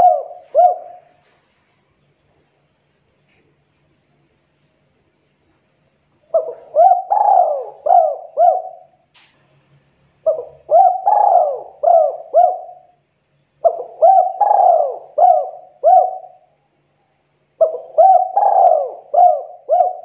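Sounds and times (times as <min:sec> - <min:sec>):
dove cooing: 0:00.0 - 0:01.4, 0:06.3 - 0:09.0, 0:10.2 - 0:13.0, 0:13.6 - 0:16.5, 0:17.6 - 0:20.0.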